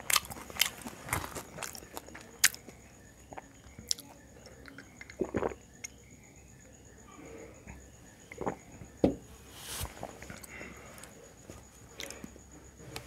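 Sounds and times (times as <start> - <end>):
chewing and mouth sounds: 0.0 - 5.6.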